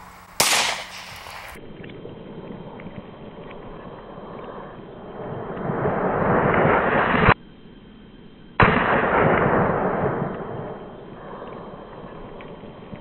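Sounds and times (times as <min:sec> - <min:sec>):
rifle shot blast: 0:00.1 - 0:01.6, 0:08.6 - 0:10.7.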